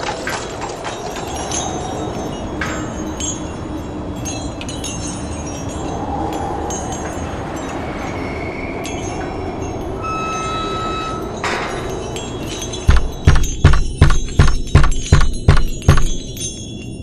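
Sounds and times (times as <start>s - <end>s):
ringing chime tones: 4.2s - 17.0s
heavy thuds: 12.9s - 16.3s.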